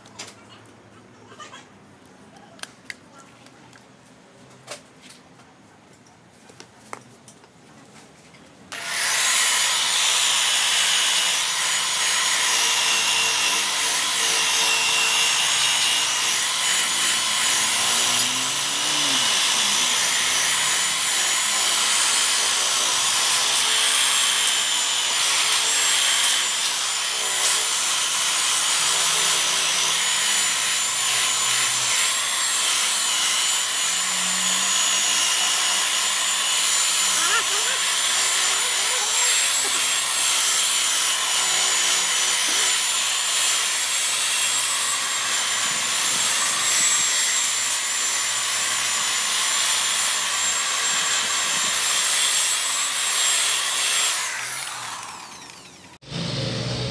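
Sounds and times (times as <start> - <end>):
rotary polisher whining: 8.7 - 56.9.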